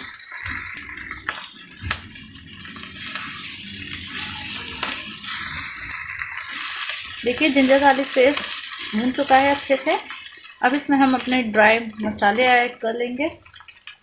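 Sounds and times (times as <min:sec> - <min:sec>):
meat and onions sizzling: 0:00.0 - 0:14.0
spatula scraping a wok: 0:02.6 - 0:09.7.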